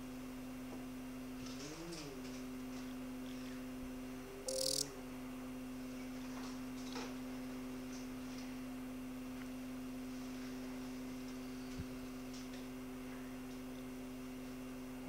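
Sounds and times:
low electronic hum: 0:01.2 - 0:06.4
faint ticks: 0:04.5 - 0:04.9.

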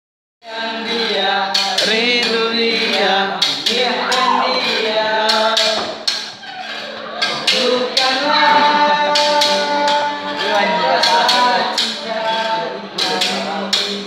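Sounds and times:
male voices singing together: 0:00.4 - 0:06.3, 0:07.2 - 0:14.0
strummed acoustic guitar: 0:00.5 - 0:14.0
sharp percussive knocks: 0:07.3 - 0:12.2.

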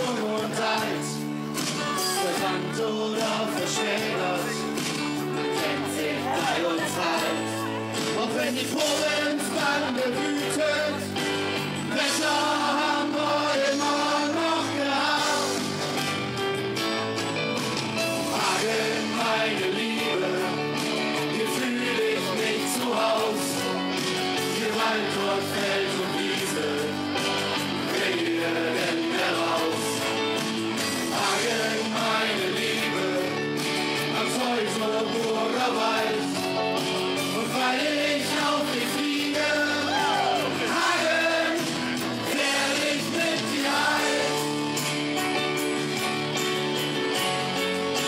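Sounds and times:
person singing: 0:00.0 - 0:11.3, 0:18.3 - 0:23.8
live band with guitars: 0:00.0 - 0:48.0.

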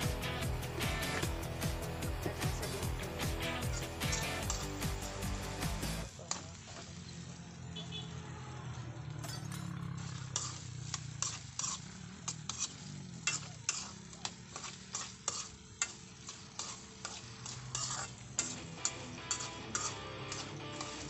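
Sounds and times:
spoon scraping metal wok: 0:02.4 - 0:05.3, 0:09.2 - 0:21.0
light oil sizzle: 0:09.9 - 0:21.0.

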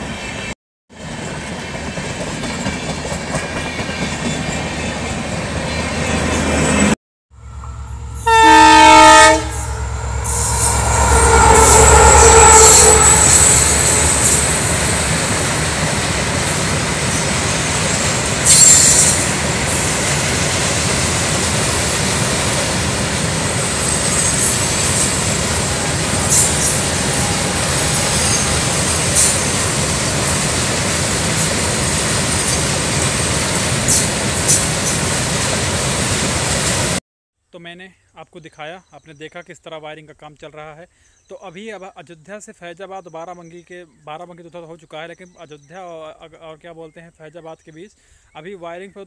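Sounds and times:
freight train wagons rumbling: 0:01.1 - 0:37.0
high-pitched wheel squeals: 0:07.4 - 0:15.4, 0:23.7 - 0:29.4.

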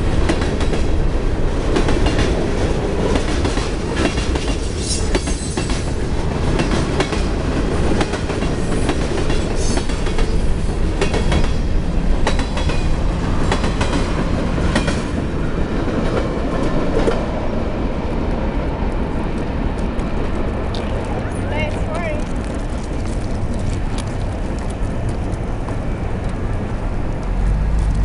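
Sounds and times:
wheels clacking over rail joints: 0:00.0 - 0:17.5
train wheels rumbling: 0:00.0 - 0:28.0.

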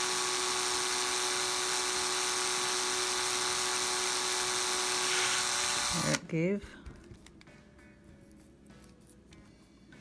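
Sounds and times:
electric drill whining: 0:00.0 - 0:06.2.

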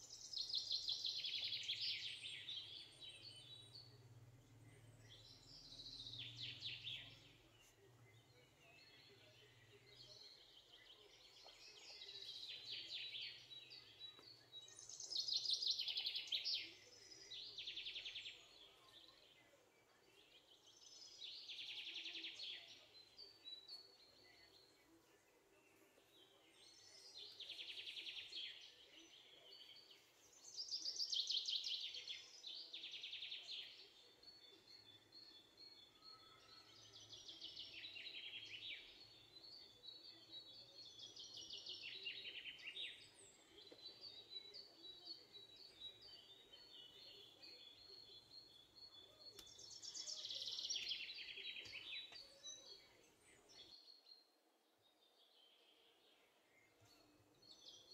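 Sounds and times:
birds chirping: 0:00.0 - 0:57.9.

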